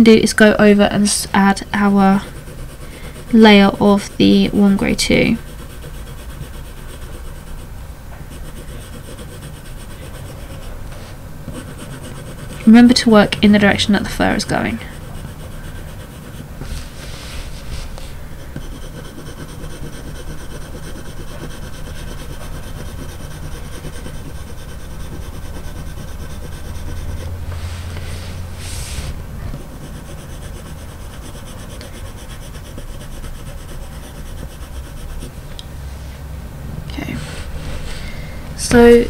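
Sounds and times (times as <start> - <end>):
pencil scratching on paper: 1.1 - 7.7, 8.3 - 35.4.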